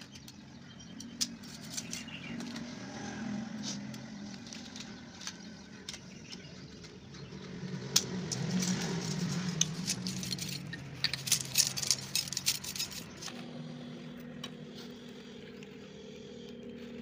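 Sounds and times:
steady low hum: 0.0 - 17.0
metal piston clicking and rattling: 7.9 - 13.3.

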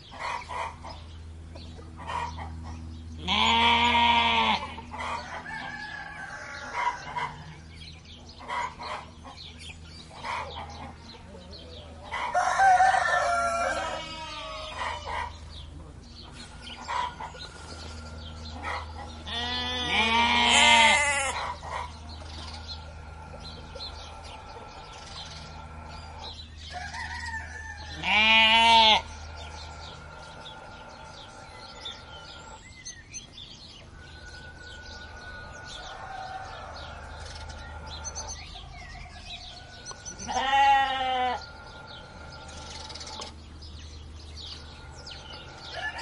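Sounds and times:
sheep bleating: 3.2 - 4.8, 13.7 - 15.1, 19.2 - 21.4, 27.9 - 29.2, 40.2 - 41.5.

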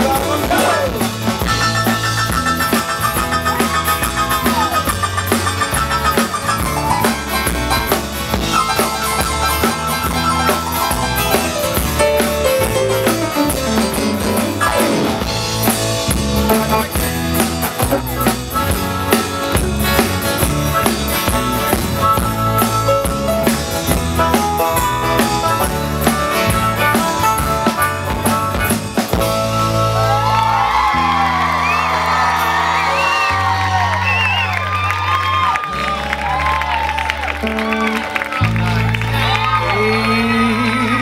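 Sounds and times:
acoustic guitars strumming: 0.0 - 30.4
drum kit beat: 0.0 - 32.6
electric bass: 0.0 - 41.0.

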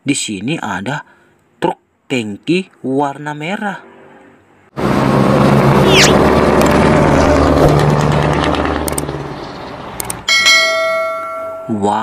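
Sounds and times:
heavy truck driving by: 4.8 - 10.0
bell-like chime: 10.3 - 12.0.

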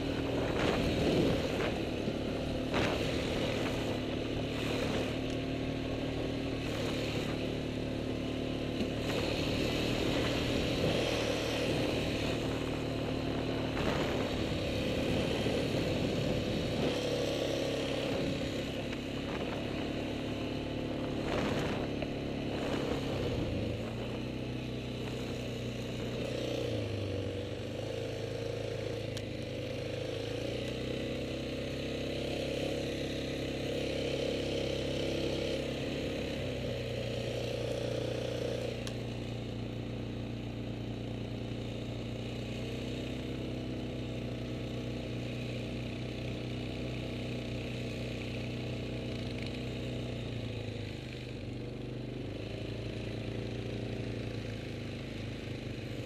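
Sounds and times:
quad bike engine running: 0.0 - 56.0.

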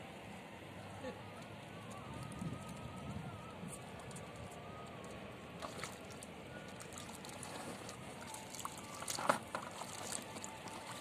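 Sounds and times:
shallow water sloshing: 5.6 - 11.0
water splash: 5.6 - 11.0.

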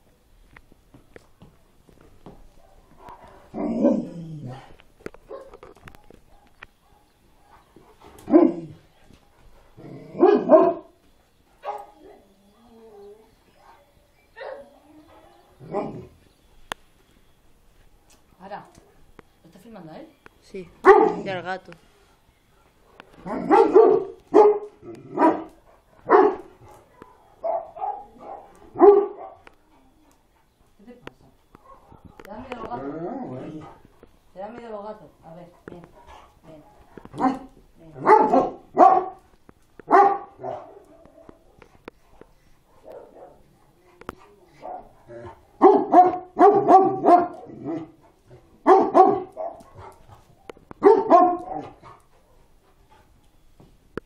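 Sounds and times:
dog barking: 5.3 - 7.7, 8.3 - 8.7, 10.2 - 10.9, 11.6 - 12.2, 13.6 - 16.0, 20.8 - 21.3, 22.9 - 29.5, 31.6 - 32.3, 37.1 - 39.2, 39.9 - 43.5, 44.5 - 48.0, 48.6 - 52.4.

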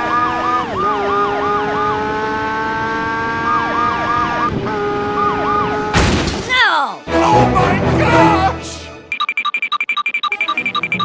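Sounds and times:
police siren yelping: 0.0 - 2.0, 3.3 - 6.0.

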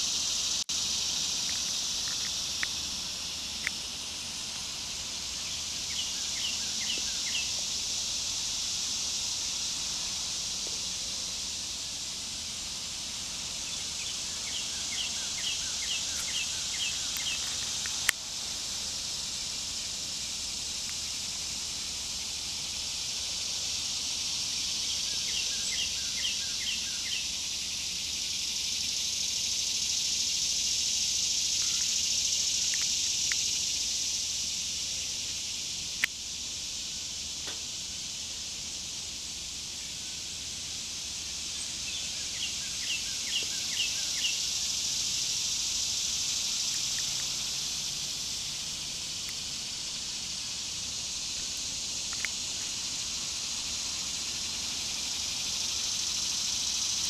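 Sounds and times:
high-pitched insect chorus: 0.0 - 57.0.

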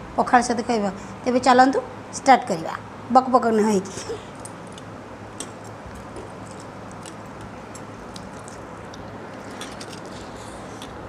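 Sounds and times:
steady low hum: 0.0 - 11.0
mouth smacking clicks: 4.4 - 11.0.

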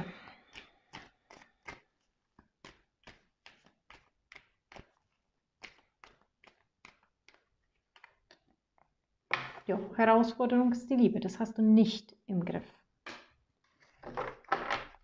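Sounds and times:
cards being shuffled: 0.5 - 9.5.

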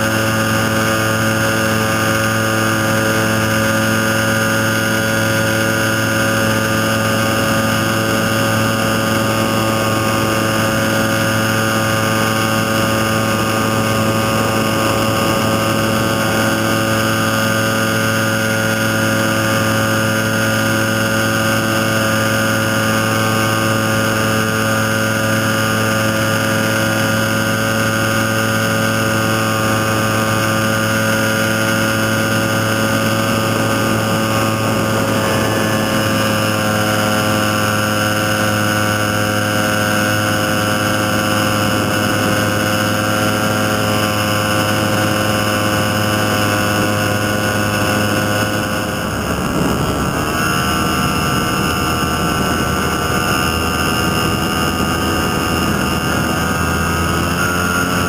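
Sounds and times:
engine and propeller droning: 0.0 - 58.0.

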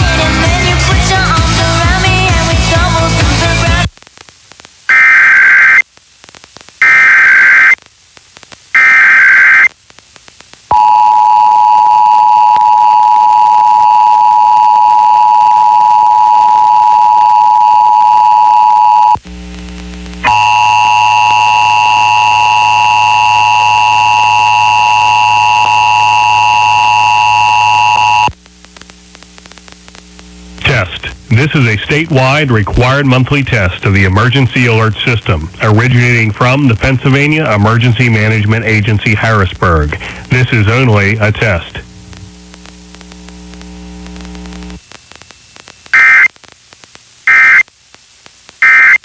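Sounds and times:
screeching digital header bursts: 4.9 - 5.8, 6.8 - 7.8, 8.8 - 9.7, 46.0 - 46.3, 47.3 - 47.6.

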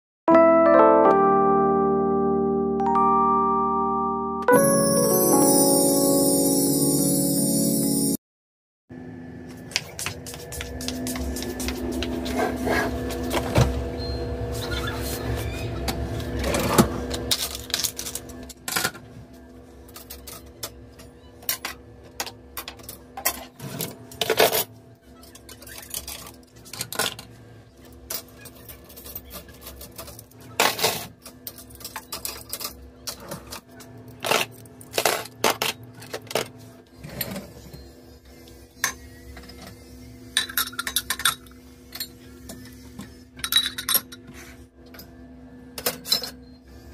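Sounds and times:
utensils and mugs clinking: 40.3 - 42.2, 43.4 - 44.3.

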